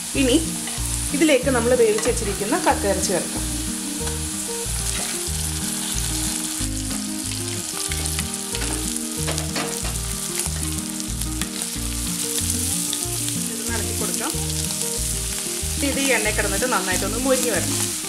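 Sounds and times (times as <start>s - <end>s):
clam meat sizzling in oil: 0.0s - 18.0s
low hum stepping in pitch: 1.4s - 6.8s
spatula stirring and scraping: 4.0s - 6.4s.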